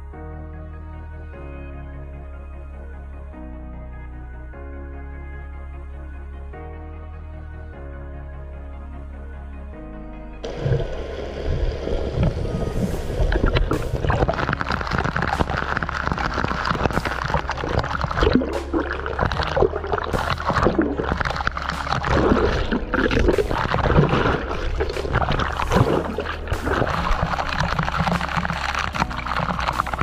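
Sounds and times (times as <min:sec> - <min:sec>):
air bubbles gurgling underwater: 0:10.4 - 0:30.0.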